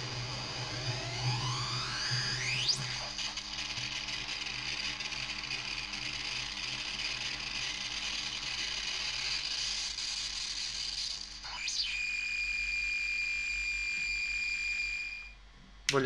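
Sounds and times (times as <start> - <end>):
synthesizer hissing noise with clicking: 0.0 - 11.9.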